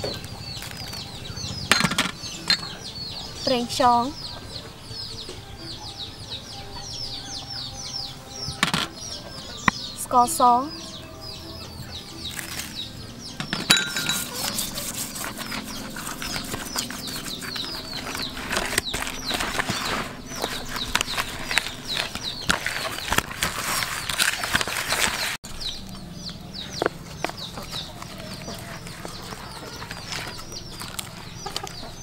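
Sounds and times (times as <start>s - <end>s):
bird chirps: 0.0s - 32.0s
hands squishing wet fish: 26.3s - 32.0s.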